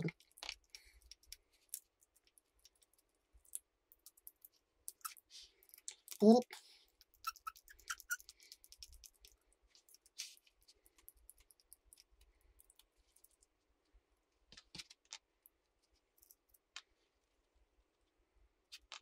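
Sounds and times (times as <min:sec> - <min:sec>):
clicks of tools and small parts: 0:00.0 - 0:06.3.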